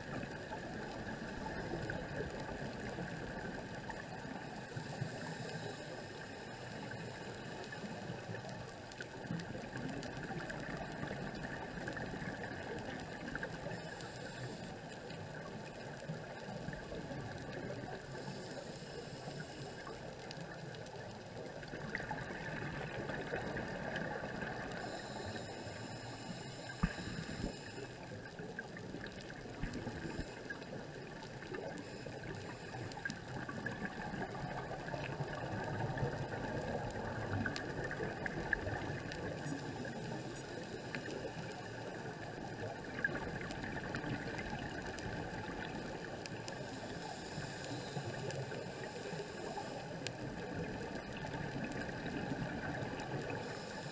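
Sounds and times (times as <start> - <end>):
underwater hiss and rumble: 0.0 - 53.9
faint clicks: 0.1 - 53.9.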